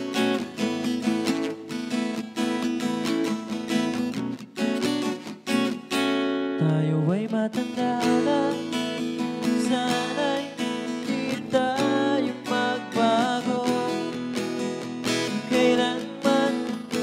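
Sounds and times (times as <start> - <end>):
acoustic guitar strumming: 0.0 - 17.0
man singing wordless melody: 6.6 - 14.4, 15.2 - 17.0.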